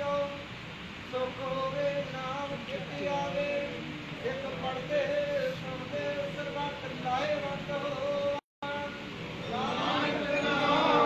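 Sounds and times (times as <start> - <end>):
congregation singing a chant: 9.4 - 11.0.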